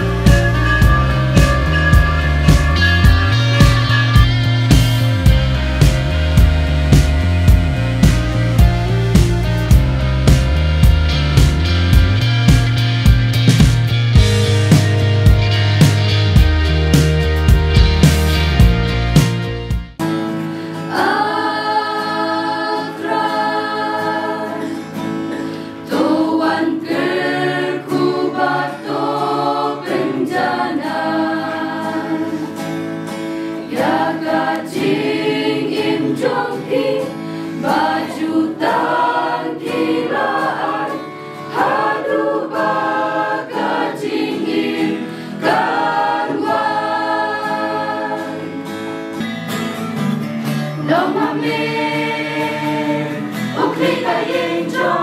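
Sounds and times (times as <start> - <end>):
choir singing a hymn: 0.0 - 4.2, 20.9 - 32.7, 33.6 - 48.8, 50.8 - 55.0.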